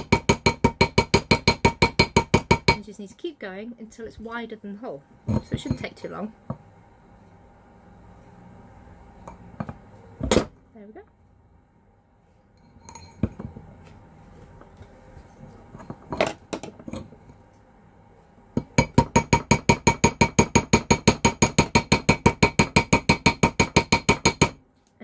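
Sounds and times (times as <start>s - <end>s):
hammer tapping metal: 0.0s - 2.9s, 18.6s - 24.6s.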